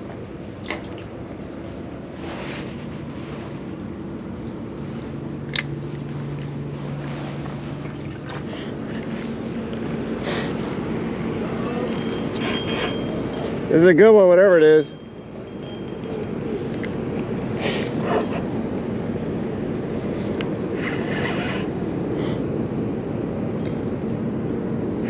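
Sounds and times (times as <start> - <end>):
water noise: 0.0 - 10.1
faint low motor hum: 0.0 - 25.0
wind: 0.0 - 25.0.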